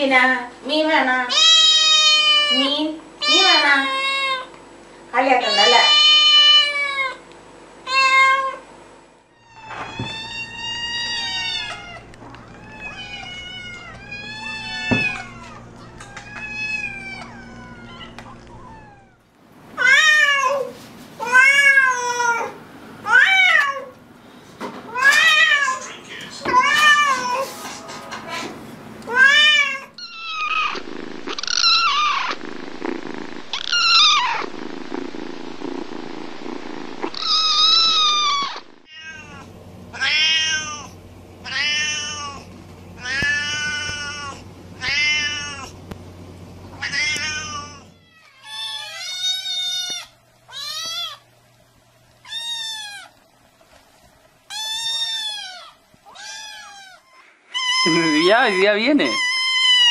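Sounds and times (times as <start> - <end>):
cats meowing: 1.3 - 4.5, 5.4 - 7.2, 7.9 - 8.6, 9.3 - 24.0, 24.9 - 27.6, 29.1 - 45.8, 46.7 - 51.3, 52.2 - 53.2, 54.5 - 59.9
kittens mewing high-pitched: 29.1 - 32.4, 37.1 - 45.7, 54.5 - 59.9
steady hiss: 30.1 - 47.8.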